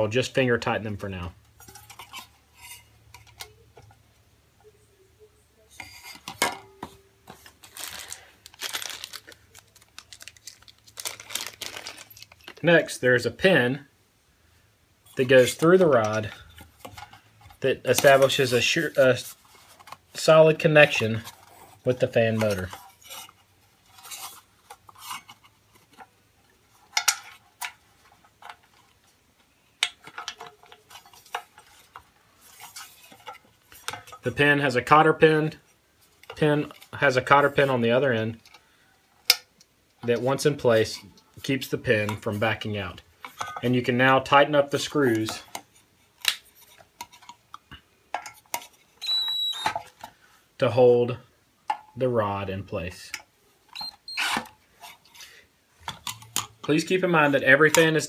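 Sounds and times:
rustling: 0:05.6 - 0:12.9, 0:15.0 - 0:34.8.

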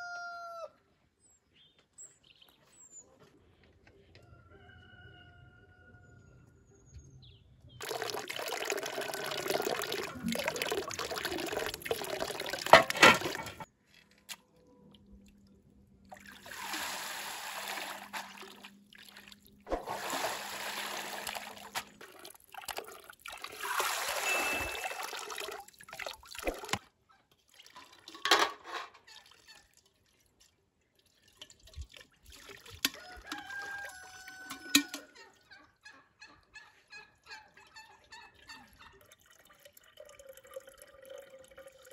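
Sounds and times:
water pouring into stone basin: 0:07.8 - 0:13.7, 0:16.1 - 0:26.8, 0:27.5 - 0:28.3, 0:29.1 - 0:35.0, 0:38.5 - 0:41.9.

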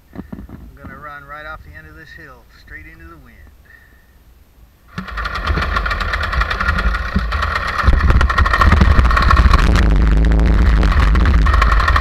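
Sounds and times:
paramotor engine and propeller: 0:04.9 - 0:12.0.

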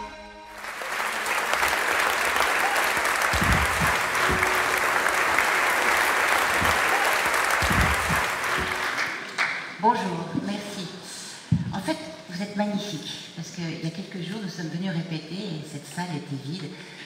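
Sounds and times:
audience applause: 0:00.5 - 0:09.7
dull low thumps: 0:03.3 - 0:04.8, 0:07.6 - 0:08.8
music jingle: 0:03.4 - 0:07.1.

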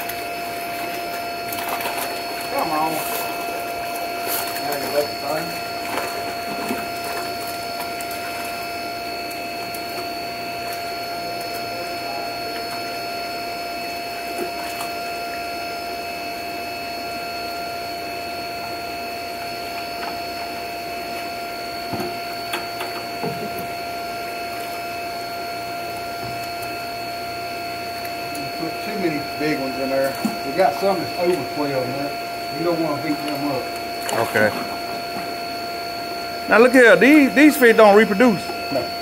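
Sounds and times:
bubbling churning water: 0:00.0 - 0:39.0
machine hum with high whine: 0:00.0 - 0:39.0.

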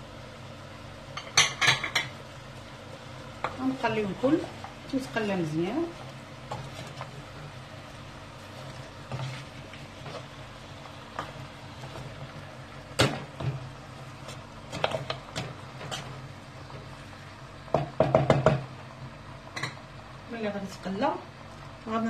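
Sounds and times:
wooden spoon scraping a pot: 0:03.5 - 0:07.6, 0:08.4 - 0:12.6, 0:13.4 - 0:16.9.

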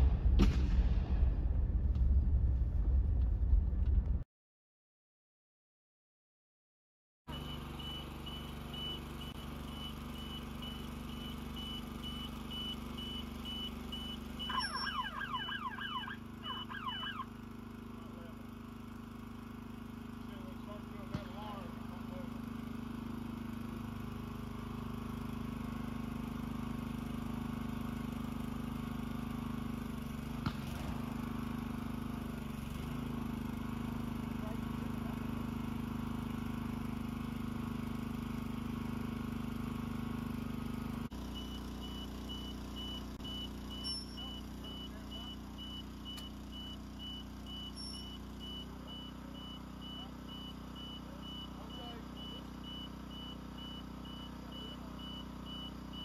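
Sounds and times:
rapid high-pitched beeping alarm: 0:07.3 - 0:18.3, 0:41.2 - 0:56.0
lift power unit humming: 0:07.3 - 0:30.2.

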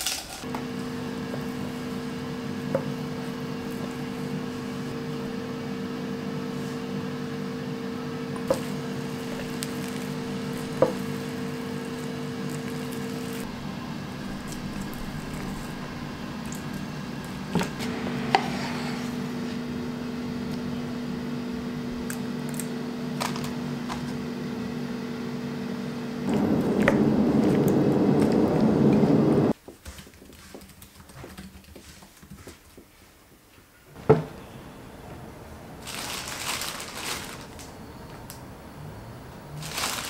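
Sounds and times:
steady hum: 0:00.4 - 0:29.6
loud rushing noise: 0:13.4 - 0:21.4, 0:26.2 - 0:29.6.

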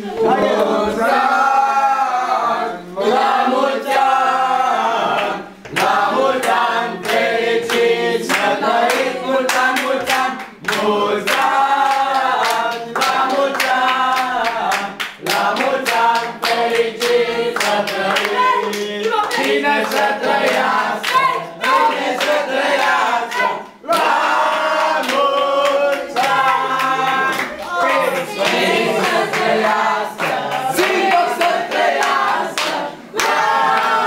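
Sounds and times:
group singing: 0:00.0 - 0:34.0
hand clapping in a steady beat: 0:05.1 - 0:34.0.

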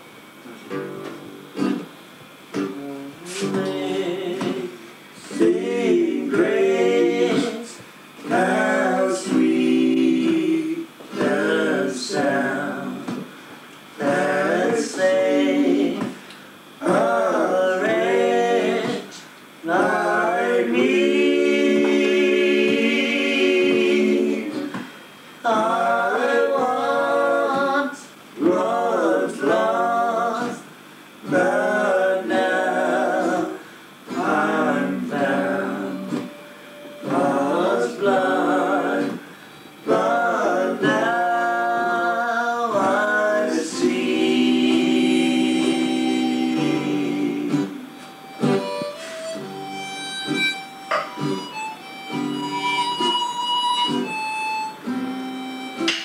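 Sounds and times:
acoustic guitar strumming: 0:00.7 - 0:04.7, 0:08.2 - 0:24.8, 0:31.2 - 0:56.0
group singing together: 0:02.5 - 0:56.0
harmonica: 0:16.8 - 0:24.8, 0:31.2 - 0:56.0.

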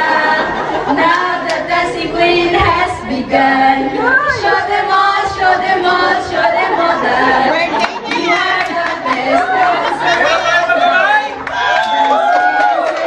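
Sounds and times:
woman singing into microphone: 0:00.0 - 0:09.9
women singing together: 0:00.0 - 0:10.3.

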